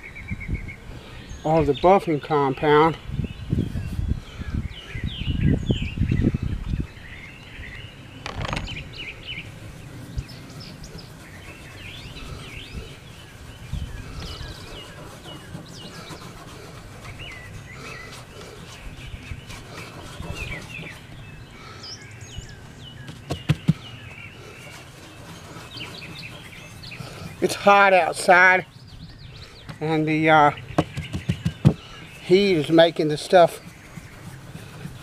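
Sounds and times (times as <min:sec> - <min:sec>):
small birds chirping: 0:00.0 - 0:35.0
sharp knocks: 0:08.2 - 0:08.8, 0:30.8 - 0:31.8.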